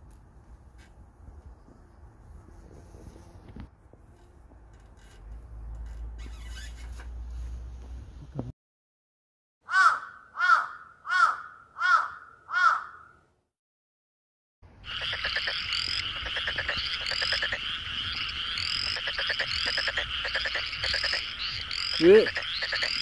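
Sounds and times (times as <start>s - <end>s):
frogs croaking chorus: 14.8s - 23.0s.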